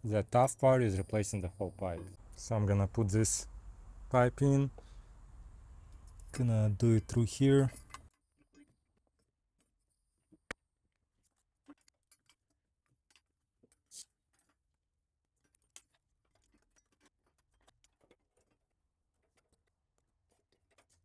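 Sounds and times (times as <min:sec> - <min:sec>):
faint clicks and knocks: 0:15.4 - 0:21.0.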